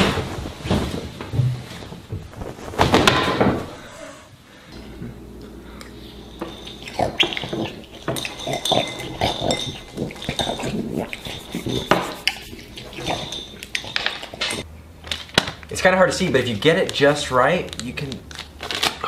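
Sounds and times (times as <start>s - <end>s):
cloth whooshing through air: 0.0s - 3.2s
metal spoon clinking on ceramic bowl: 6.2s - 14.6s.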